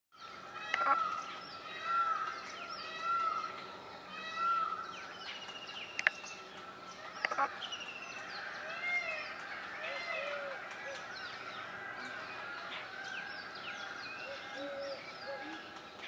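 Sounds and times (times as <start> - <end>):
birds chirping and whistling: 0.2 - 16.0
sharp clicks: 5.2 - 8.3.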